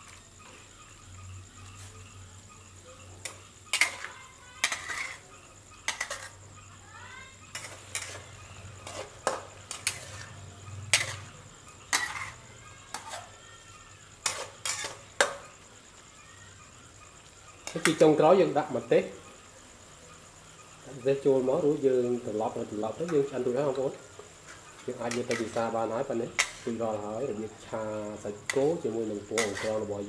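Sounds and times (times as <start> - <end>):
spatula clanking and scraping wok: 2.6 - 6.6, 7.4 - 15.7, 17.1 - 18.4, 22.1 - 30.0
metal on metal squeaks: 3.2 - 6.4, 7.5 - 13.4, 14.2 - 15.1, 28.5 - 30.0.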